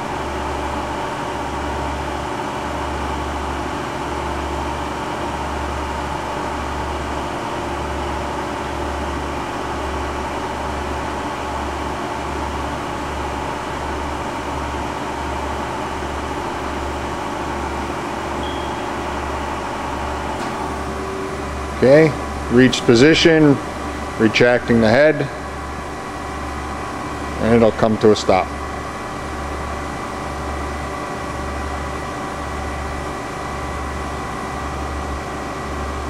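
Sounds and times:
grinding machine whirring: 0:14.5 - 0:30.2.

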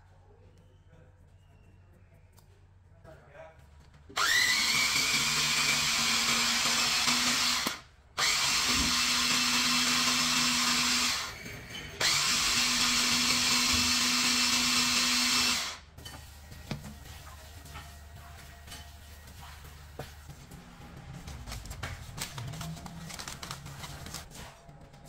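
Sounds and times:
food chopper motor whirring: 0:04.2 - 0:11.4, 0:12.0 - 0:15.8.

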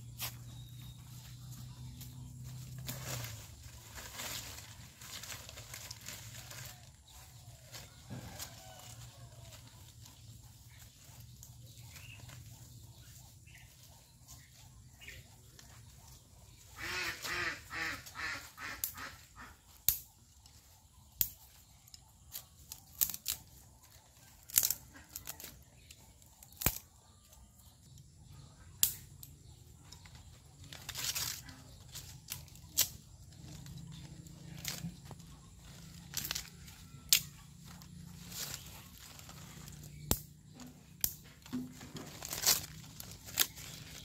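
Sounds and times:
bamboo cracking and snapping: 0:00.3 - 0:12.6, 0:16.8 - 0:20.2, 0:21.1 - 0:27.7, 0:28.7 - 0:44.0
bamboo rasping tearing: 0:22.3 - 0:23.6, 0:24.2 - 0:26.8, 0:30.1 - 0:44.0.

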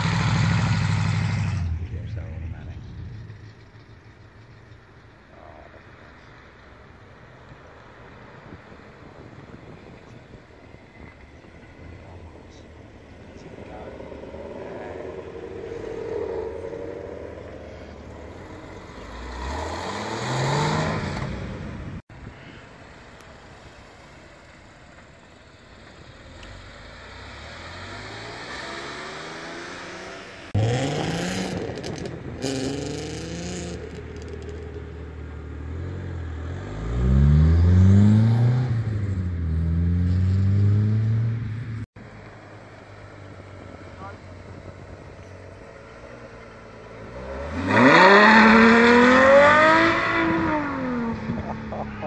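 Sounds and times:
sports car engines revving: 0:00.0 - 0:22.0, 0:25.3 - 0:52.0.

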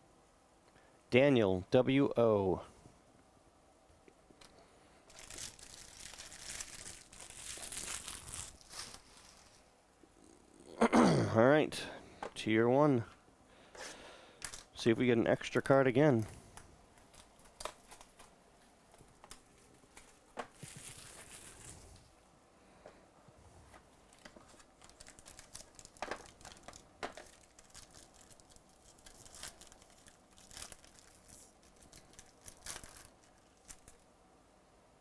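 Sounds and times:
foil wrapper tearing and crinkling: 0:05.1 - 0:09.7, 0:17.0 - 0:18.3, 0:19.2 - 0:22.0, 0:24.1 - 0:34.0.

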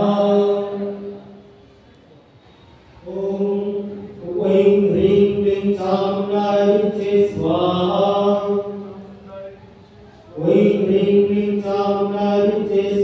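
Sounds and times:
chanting on a held pitch: 0:03.0 - 0:13.0.

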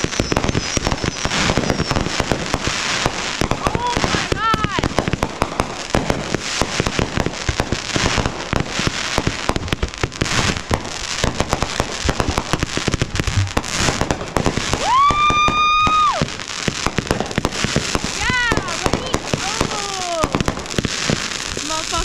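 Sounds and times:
high firework whistle: 0:00.0 - 0:02.3, 0:13.2 - 0:16.4
fireworks popping and crackling: 0:00.0 - 0:22.0.

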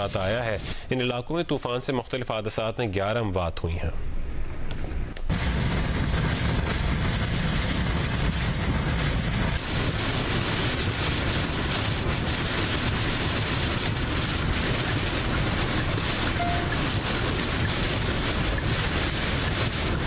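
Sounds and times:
hurricane wind and rain: 0:05.3 - 0:20.0.

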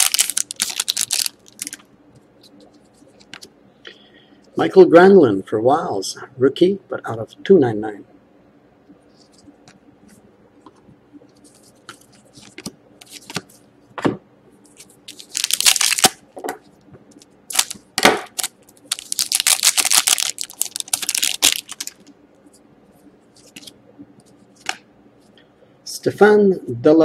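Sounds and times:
foil pack tearing and crinkling: 0:00.0 - 0:01.8, 0:15.1 - 0:16.2, 0:17.5 - 0:22.0
knock of cards handled: 0:14.0 - 0:14.2.

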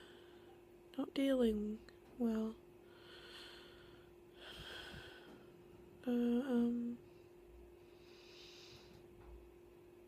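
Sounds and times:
soft breaths: 0:00.0 - 0:00.7, 0:02.8 - 0:09.4
faint steady background tone: 0:00.0 - 0:10.0
woman humming: 0:06.0 - 0:07.1.

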